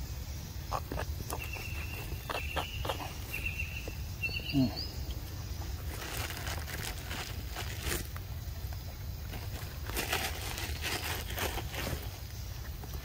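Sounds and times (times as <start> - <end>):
monkey call: 0.7 - 5.0.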